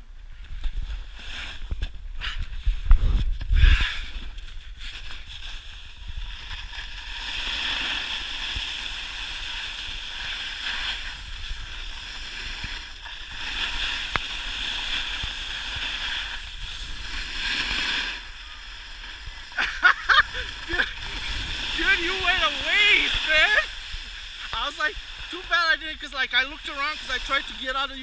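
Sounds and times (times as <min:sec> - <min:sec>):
wind on microphone: 0:00.0 - 0:06.9
snowboard hissing on snow: 0:00.8 - 0:01.8, 0:03.0 - 0:28.0.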